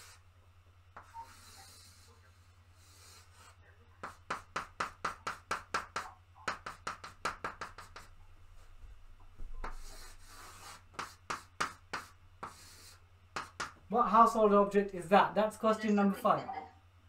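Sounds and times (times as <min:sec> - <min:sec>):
chalk scratching on blackboard: 0:00.0 - 0:00.2, 0:01.0 - 0:08.2, 0:09.6 - 0:13.8.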